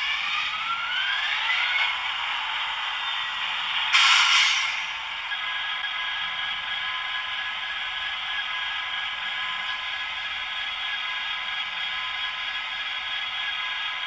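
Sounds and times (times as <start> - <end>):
short burst of hiss: 3.9 - 5.1.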